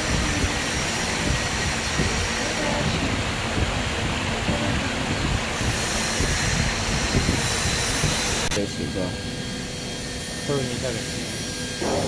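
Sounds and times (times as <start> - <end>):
router spindle carving foam: 0.0 - 3.2, 4.5 - 12.0.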